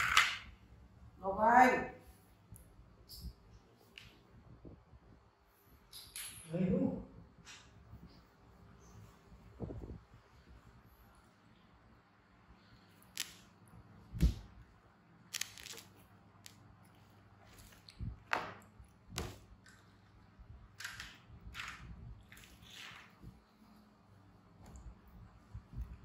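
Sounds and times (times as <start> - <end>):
rustling: 15.3 - 18.3.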